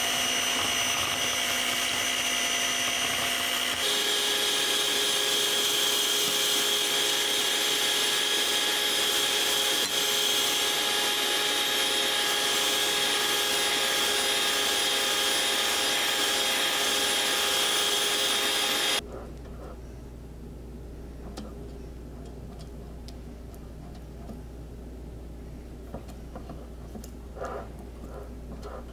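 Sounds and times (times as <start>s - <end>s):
electric hand mixer whining: 0.0s - 19.0s.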